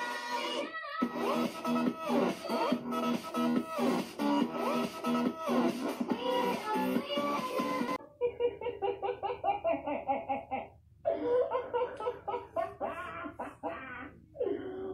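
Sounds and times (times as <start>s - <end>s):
music: 0.0s - 8.0s
person laughing: 8.0s - 14.9s.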